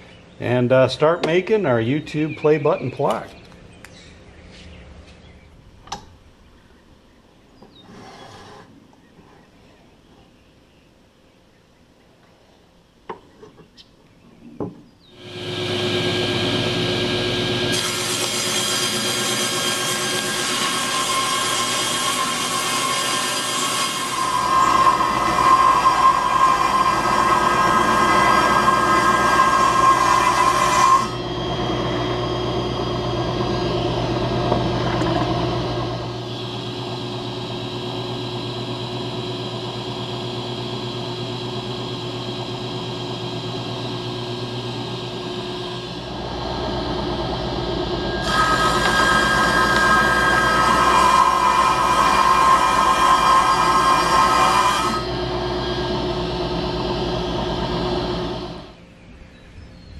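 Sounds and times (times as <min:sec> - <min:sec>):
table saw cutting board: 0:15.2 - 0:58.8.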